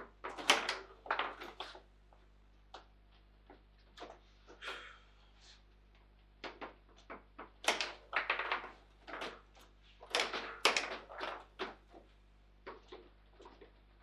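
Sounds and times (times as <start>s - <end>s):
table football ball knocks and clacks: 0.0s - 1.8s, 6.4s - 13.8s.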